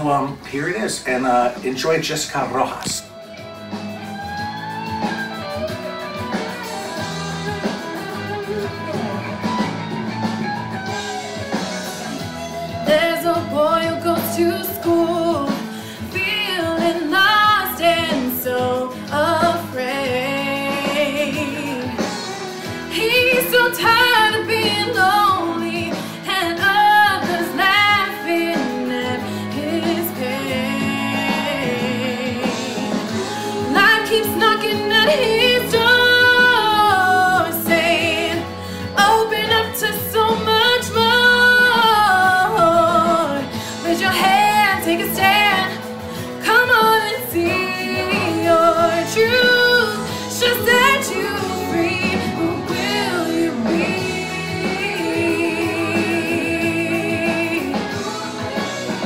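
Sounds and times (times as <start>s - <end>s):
instrumental accompaniment: 0.0s - 59.0s
woman singing: 12.6s - 59.0s.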